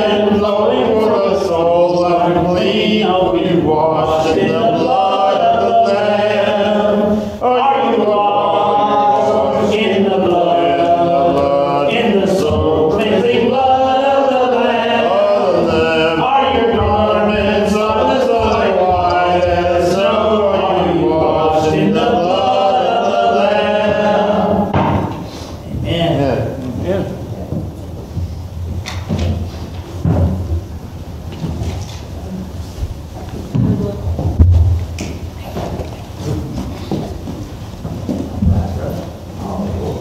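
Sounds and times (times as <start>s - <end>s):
man singing: 0.0s - 24.2s
congregation singing a hymn: 0.0s - 27.6s, 28.9s - 40.0s.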